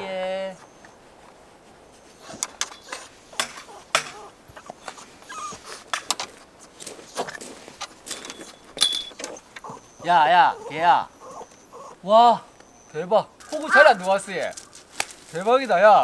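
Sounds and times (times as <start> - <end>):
dog whimpering: 0.0 - 1.0, 2.1 - 5.9, 8.4 - 14.1.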